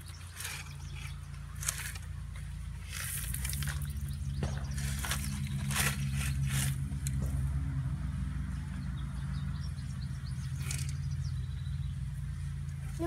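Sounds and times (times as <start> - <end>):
pebbles crunching and rattling: 0.0 - 7.4.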